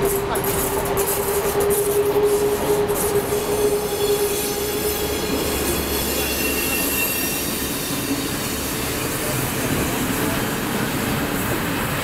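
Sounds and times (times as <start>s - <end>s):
train hum: 0.0s - 12.0s
train rumbling past: 0.0s - 12.0s
high wheel squeal: 1.4s - 9.3s.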